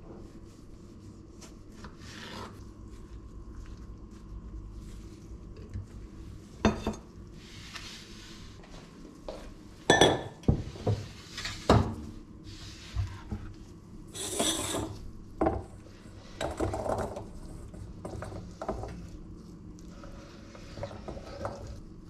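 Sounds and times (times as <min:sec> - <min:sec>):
dishes clinking: 0:06.6 - 0:07.0, 0:09.9 - 0:10.4
scraping on cutting board: 0:14.1 - 0:15.0.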